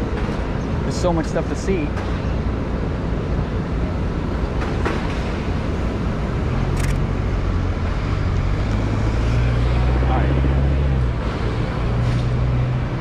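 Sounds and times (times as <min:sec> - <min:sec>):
traffic rumble: 0:00.0 - 0:13.0
nearby engine hum: 0:06.6 - 0:13.0.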